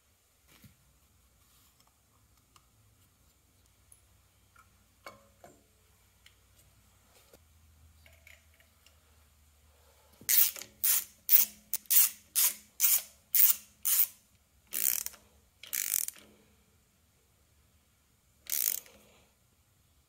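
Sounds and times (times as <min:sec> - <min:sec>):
ratchet wrench ratcheting: 0:10.3 - 0:16.3, 0:18.5 - 0:19.0.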